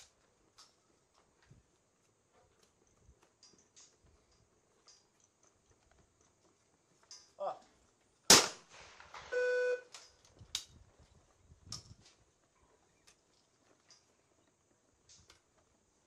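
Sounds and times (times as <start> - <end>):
person calling out: 7.4 - 7.7
shotgun shot: 8.3 - 9.1
electronic beep: 9.3 - 9.9.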